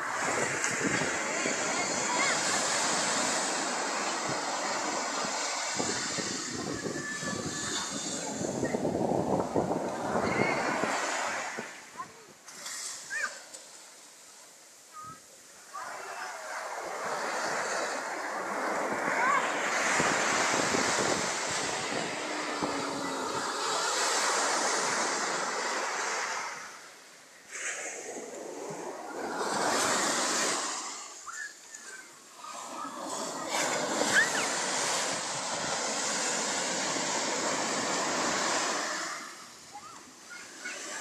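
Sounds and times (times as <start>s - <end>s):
wind buffeting microphone: 0.0s - 12.2s, 16.7s - 26.0s
surf breaking on beach: 0.0s - 14.0s, 15.0s - 41.0s.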